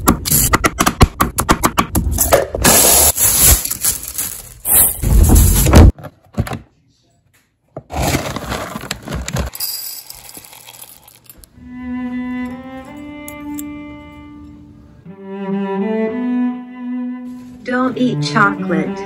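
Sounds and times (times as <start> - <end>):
plastic parts clattering: 3.2 - 6.6, 7.8 - 11.4.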